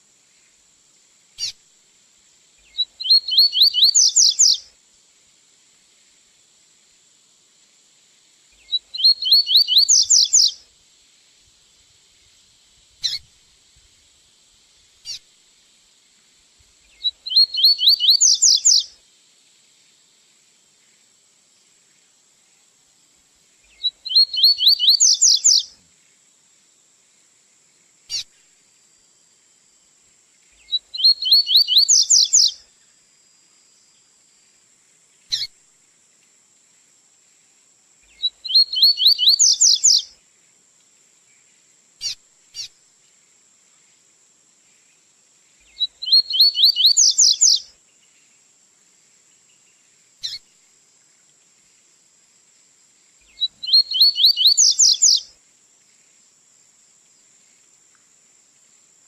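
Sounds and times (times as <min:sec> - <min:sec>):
single bird chirps: 0:02.7 - 0:04.6, 0:08.6 - 0:10.6, 0:13.0 - 0:13.2, 0:16.9 - 0:18.8, 0:23.7 - 0:25.7, 0:28.1 - 0:28.3, 0:30.6 - 0:32.5, 0:35.3 - 0:35.5, 0:38.1 - 0:40.0, 0:42.0 - 0:42.7, 0:45.7 - 0:47.6, 0:50.2 - 0:50.4, 0:53.3 - 0:55.3
bird singing rising notes: 0:03.0 - 0:04.6, 0:08.9 - 0:10.5, 0:17.2 - 0:18.8, 0:24.0 - 0:25.6, 0:31.0 - 0:32.5, 0:38.4 - 0:40.0, 0:45.8 - 0:47.6, 0:53.4 - 0:55.2.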